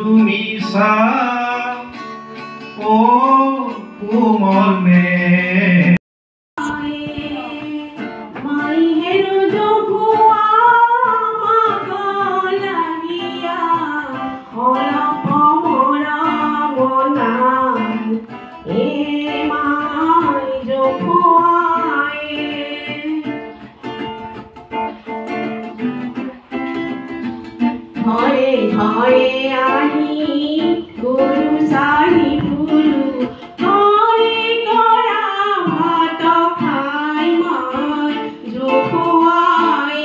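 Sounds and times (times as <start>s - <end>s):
strummed acoustic guitar: 0.0s - 6.0s, 6.6s - 40.0s
woman singing: 6.6s - 23.8s, 27.7s - 40.0s.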